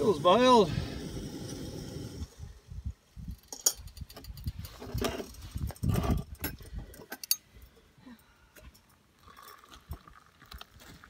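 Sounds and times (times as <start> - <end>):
light clinks and taps: 6.4 - 7.7
water trickling into cup: 9.2 - 10.7.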